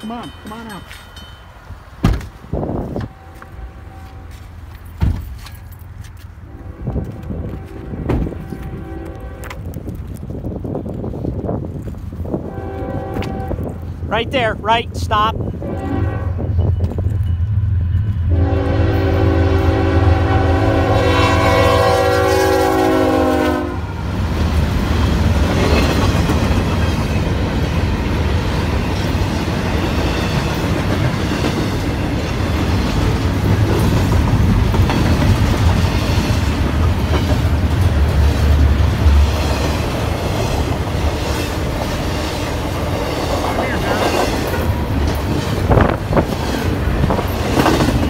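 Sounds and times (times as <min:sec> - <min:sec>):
train cars rumbling on rails: 0:00.0 - 0:48.0
locomotive horn chord: 0:03.0 - 0:04.5, 0:06.4 - 0:09.6, 0:15.6 - 0:16.5, 0:18.3 - 0:23.9.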